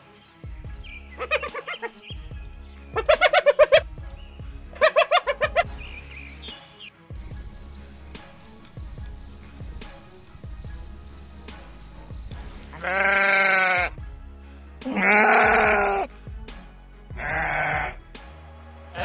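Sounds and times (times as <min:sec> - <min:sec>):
crickets chirping: 0:07.2 - 0:12.7
sheep bleat: 0:12.6 - 0:14.0, 0:14.8 - 0:16.1, 0:17.1 - 0:18.0.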